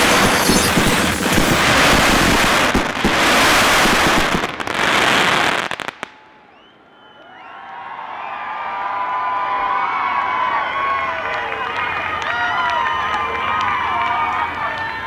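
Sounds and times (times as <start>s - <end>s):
fireworks bursting and crackling: 0.0s - 6.4s
crowd cheering and whooping: 6.2s - 15.0s.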